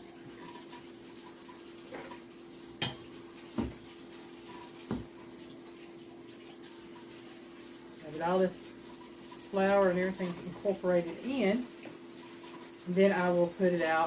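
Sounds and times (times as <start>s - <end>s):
tap water running: 0.0s - 14.0s.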